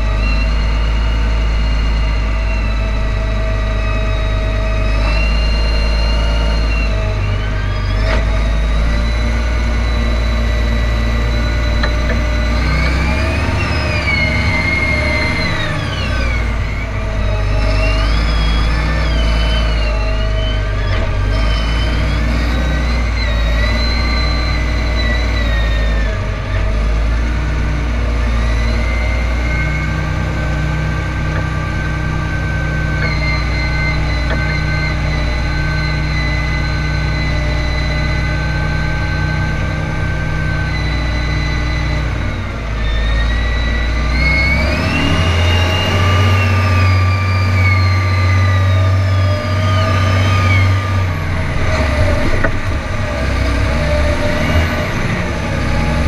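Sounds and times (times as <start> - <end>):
tractor diesel engine running: 0.0 - 56.0.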